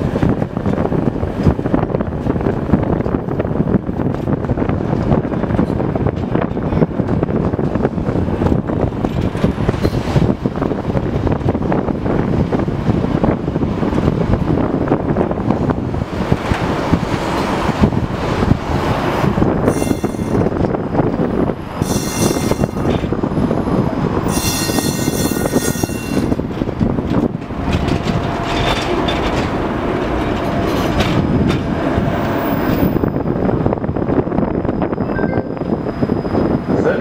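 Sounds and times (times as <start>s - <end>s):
tram rumbling on rails: 0.0s - 37.0s
high-pitched wheel squeal: 19.7s - 20.5s, 21.8s - 22.9s, 24.3s - 26.4s.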